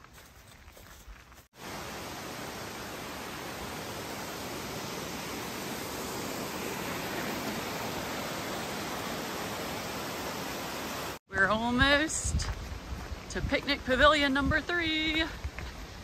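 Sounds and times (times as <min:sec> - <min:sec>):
waterfall roaring: 0:01.6 - 0:11.2.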